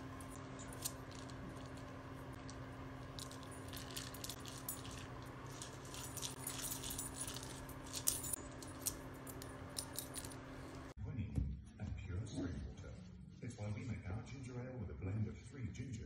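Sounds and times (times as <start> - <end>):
steady low hum: 0.0 - 16.0
plastic ball rattling: 0.6 - 8.4.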